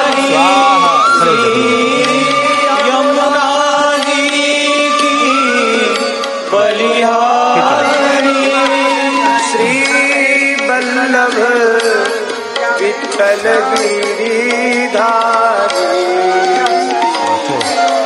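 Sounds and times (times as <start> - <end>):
held instrumental tones: 0.0 - 6.9
person singing: 0.0 - 17.9.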